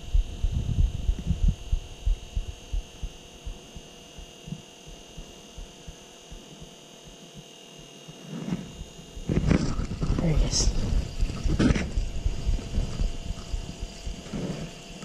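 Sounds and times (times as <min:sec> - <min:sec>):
wind buffeting microphone: 0:00.0 - 0:03.6, 0:09.1 - 0:15.0
faint high-pitched whine: 0:00.0 - 0:15.0.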